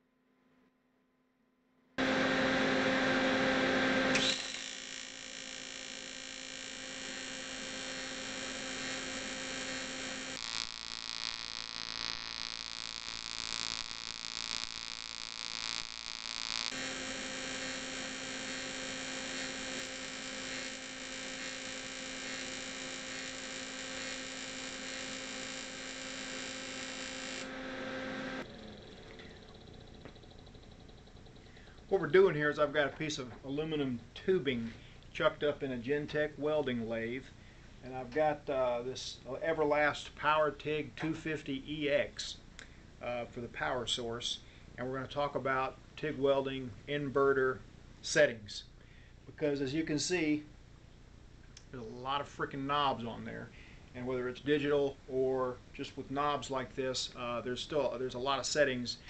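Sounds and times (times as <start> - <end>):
welding arc buzzing: 2.0 - 32.0.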